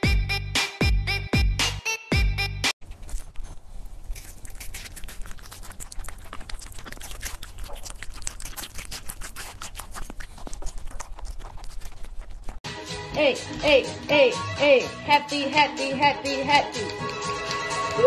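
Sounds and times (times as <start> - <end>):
pet chewing watermelon: 2.8 - 12.6.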